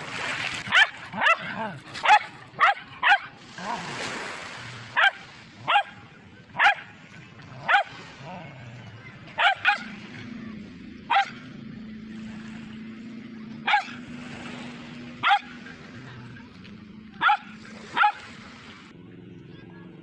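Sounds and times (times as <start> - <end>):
small dog barking: 0.7 - 3.3, 5.0 - 6.0, 6.6 - 6.9, 7.6 - 7.9, 9.4 - 10.0, 11.1 - 11.4, 13.6 - 14.0, 15.2 - 15.6, 17.2 - 18.2.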